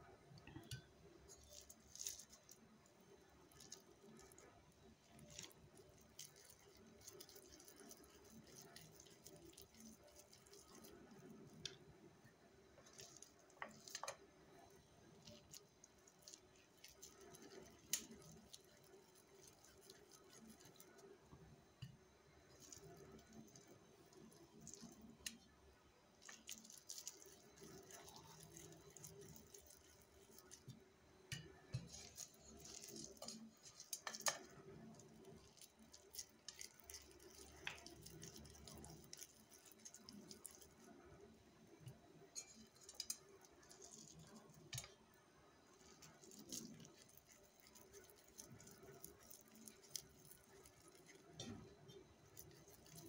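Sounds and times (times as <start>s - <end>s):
hands squishing raw mince: 0.6s - 11.9s, 12.8s - 21.1s, 26.2s - 41.0s, 45.8s - 53.0s.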